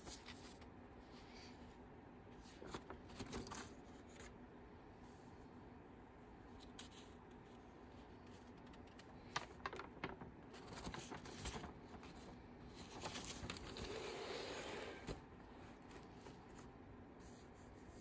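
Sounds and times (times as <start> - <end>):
paper rustling and flapping: 0.0 - 0.7, 2.4 - 4.4, 8.2 - 16.8.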